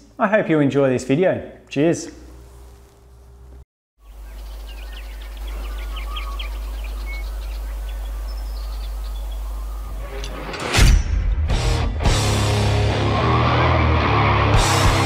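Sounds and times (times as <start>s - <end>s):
small birds chirping: 4.0s - 10.3s.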